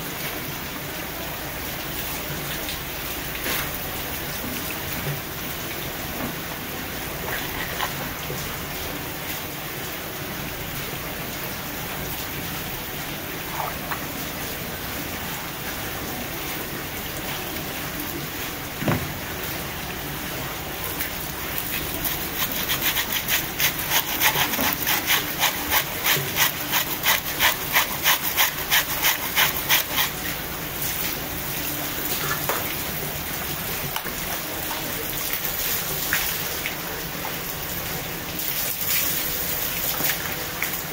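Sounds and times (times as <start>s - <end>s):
rhythmic rubbing strokes: 22.3s - 30.2s.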